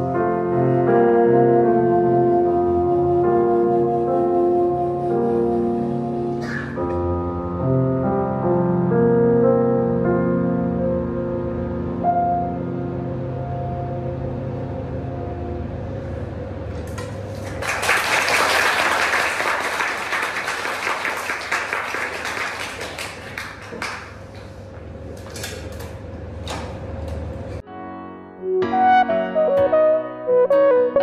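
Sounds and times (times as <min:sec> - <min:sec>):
soprano saxophone and piano: 0:00.0 - 0:16.6, 0:27.6 - 0:31.0
audience applauding: 0:17.3 - 0:24.5.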